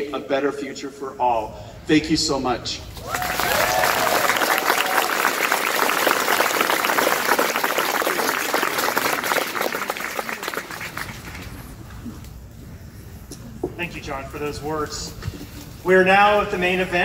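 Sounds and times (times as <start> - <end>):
person cheering: 3.0 - 5.2
crowd applauding: 3.0 - 11.9.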